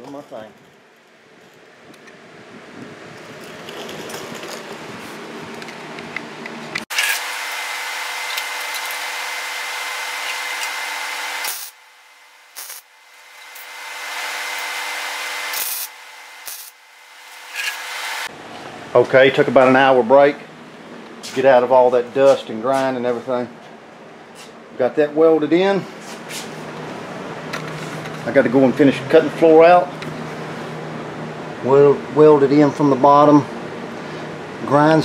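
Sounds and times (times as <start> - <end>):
angle grinder running: 6.9 - 18.3
welder short sharp bursts: 6.9 - 18.3.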